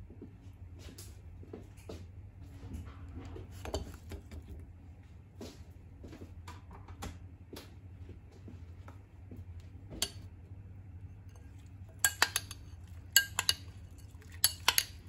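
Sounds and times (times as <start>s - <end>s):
low steady hum: 0.0s - 15.0s
spoon and glass bowl clinking: 11.3s - 15.0s.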